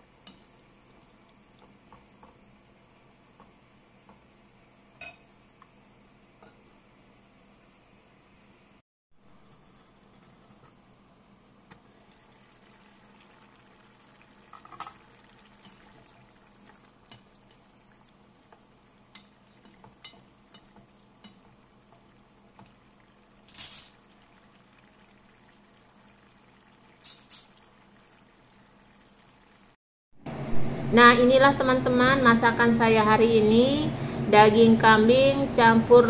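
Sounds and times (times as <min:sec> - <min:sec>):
faint simmering: 0:00.0 - 0:07.5, 0:09.3 - 0:36.0.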